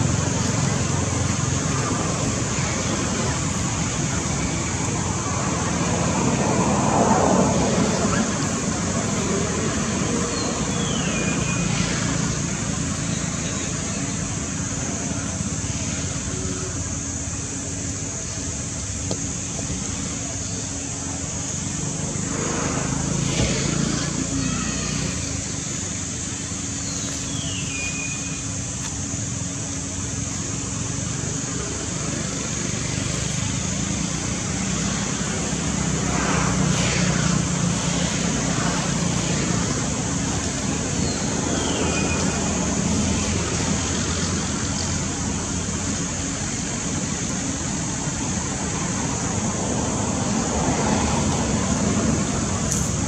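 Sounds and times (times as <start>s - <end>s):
constant high hiss: 0.0s - 53.0s
low rumble of distant traffic: 0.0s - 53.0s
falling chirp: 9.2s - 14.1s, 26.6s - 28.6s.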